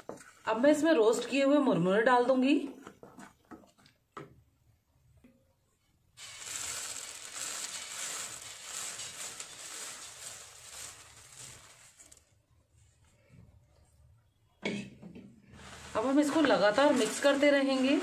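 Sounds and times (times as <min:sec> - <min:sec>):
puffed rice pouring rustle: 0:06.2 - 0:12.4, 0:15.5 - 0:18.0.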